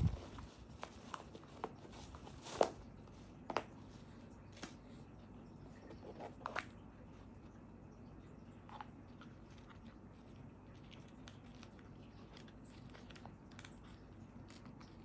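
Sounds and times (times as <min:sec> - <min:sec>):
cardboard box rustling: 0:00.0 - 0:03.7.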